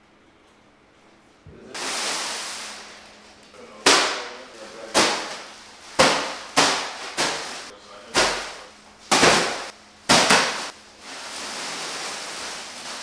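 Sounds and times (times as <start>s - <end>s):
loud sharp ringing bangs: 3.8s - 10.8s.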